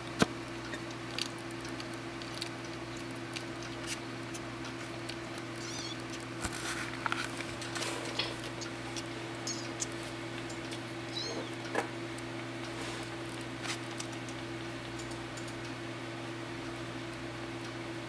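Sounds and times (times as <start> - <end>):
kittens scratching and rustling: 0.3 - 16.9
kitten squeak: 5.6 - 6.2, 9.4 - 9.9, 11.1 - 11.6.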